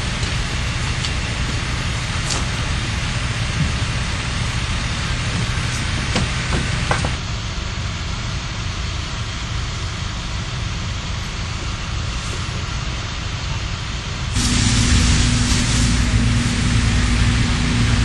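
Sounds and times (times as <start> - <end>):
low engine rumble: 0.0 - 18.0
hiss: 12.1 - 12.9, 14.3 - 18.0.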